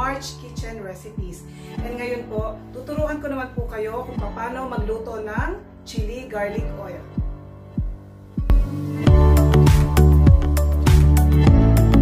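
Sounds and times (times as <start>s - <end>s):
background music with drum beat: 7.2s - 12.0s.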